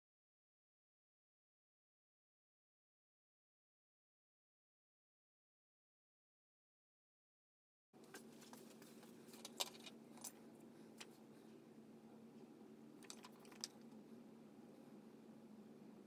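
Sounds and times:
steady low hum: 0:08.0 - 0:16.0.

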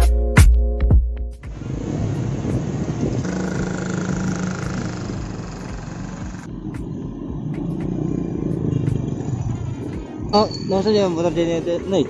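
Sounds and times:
road noise: 0:01.4 - 0:12.0
wind rushing on microphone: 0:01.5 - 0:04.4
motorcycle engine: 0:01.5 - 0:10.6.

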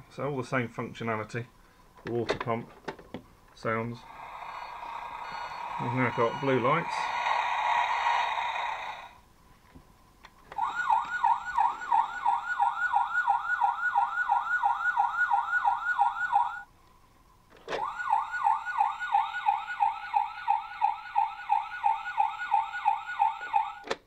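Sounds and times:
toy electronic siren wailing: 0:04.0 - 0:09.2, 0:10.6 - 0:16.7, 0:17.8 - 0:23.9.

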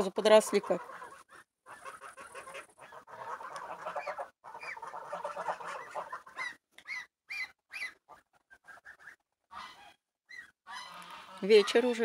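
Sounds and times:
young geese honking: 0:00.1 - 0:12.0.

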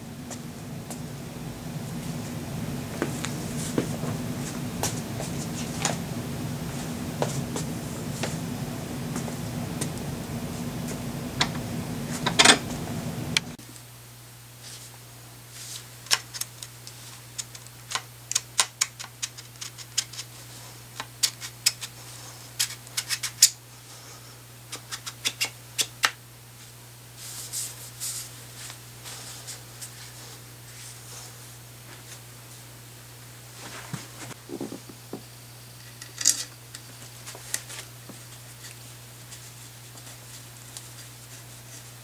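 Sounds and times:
steady low hum: 0:00.0 - 0:14.6
tools and parts clicking: 0:35.8 - 0:36.8.

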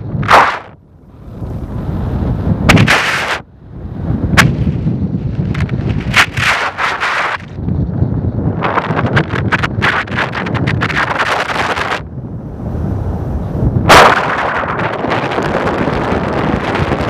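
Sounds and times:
wind buffeting microphone: 0:00.0 - 0:17.0
sharp crack: 0:00.2 - 0:00.8, 0:02.6 - 0:03.5, 0:04.3 - 0:07.6, 0:13.9 - 0:15.8.

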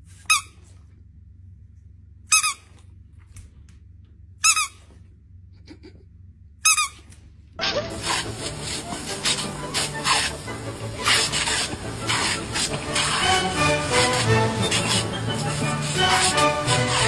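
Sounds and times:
squeaky dog toy squeaking: 0:00.2 - 0:00.6, 0:02.3 - 0:02.8, 0:04.4 - 0:04.9, 0:06.6 - 0:17.0.

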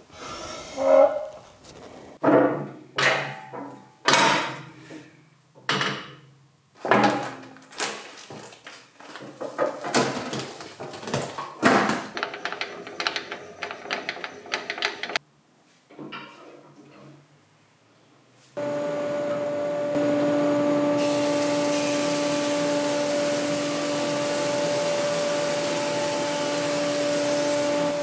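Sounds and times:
metal clanks and knocks: 0:15.9 - 0:17.1.

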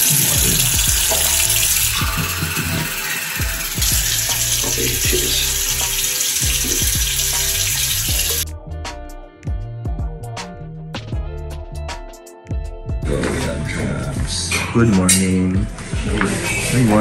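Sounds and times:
tap water running into a sink: 0:00.0 - 0:08.4.

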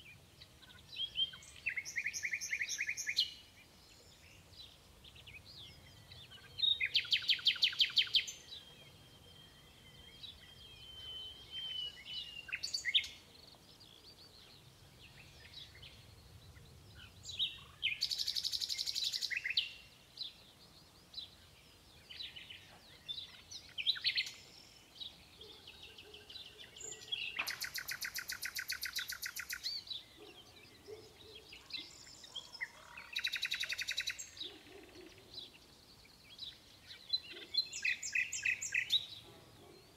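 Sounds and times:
nightingale singing: 0:00.0 - 0:39.9.

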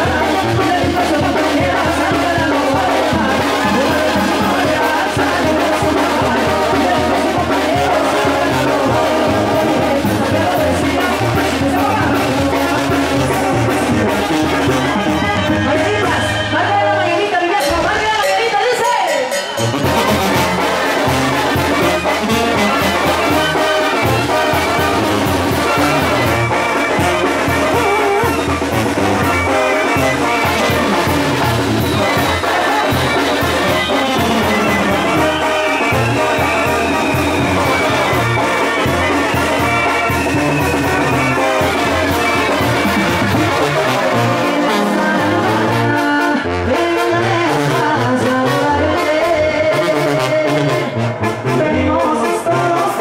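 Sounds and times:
regular bass beat: 0:00.0 - 0:16.6, 0:19.6 - 0:49.6
brass band with trombones: 0:00.0 - 0:53.0.

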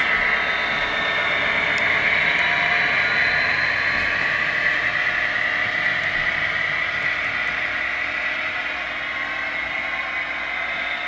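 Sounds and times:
model train diesel engine sound: 0:00.0 - 0:11.0.

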